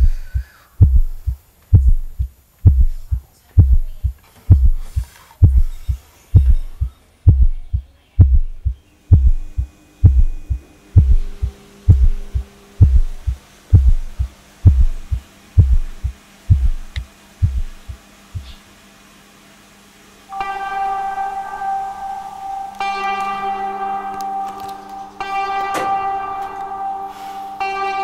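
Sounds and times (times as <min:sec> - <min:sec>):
heartbeat double thump: 0:00.0 - 0:18.6
faint steady hum: 0:00.0 - 0:28.0.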